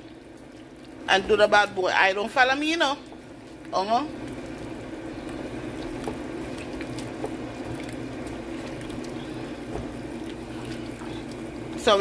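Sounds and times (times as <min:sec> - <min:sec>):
pasta bubbling in a pan: 0:00.0 - 0:12.0
wooden spoon stirring: 0:05.1 - 0:12.0.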